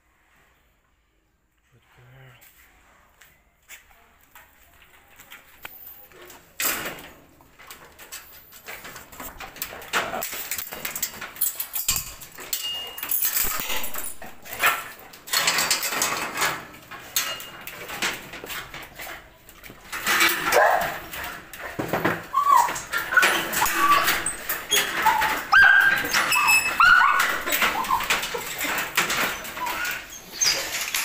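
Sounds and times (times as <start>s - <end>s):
dog whining: 22.2s - 31.0s.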